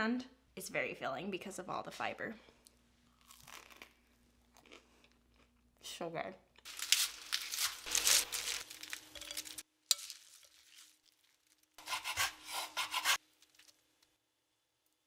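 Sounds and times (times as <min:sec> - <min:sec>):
leaves rustling into bowl: 0:06.7 - 0:11.8
knife chopping on wooden board: 0:11.8 - 0:13.2.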